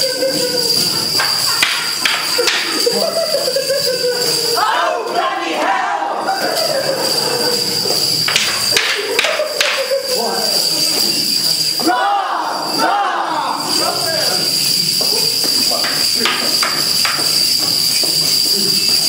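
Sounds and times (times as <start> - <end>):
jingling bells: 0.0 - 19.0
wavering voices: 0.0 - 19.0
wooden sticks clacking: 1.2 - 3.0, 8.2 - 10.1, 14.9 - 19.0.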